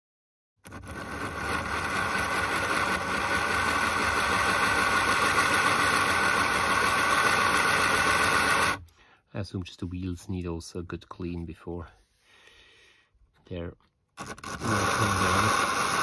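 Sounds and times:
small electric motor whirring: 0.6s - 8.8s, 14.2s - 16.0s.

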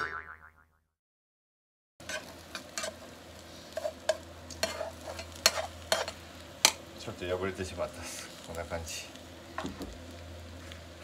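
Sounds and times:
metal turner scraping pan: 2.0s - 6.8s
food sizzling in frying pan: 2.0s - 11.0s.

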